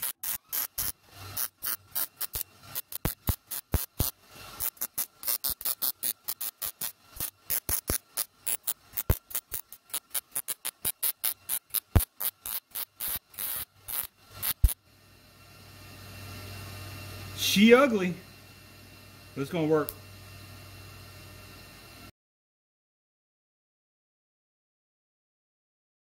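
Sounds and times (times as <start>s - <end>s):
welding arc crackling: 0.0s - 14.8s.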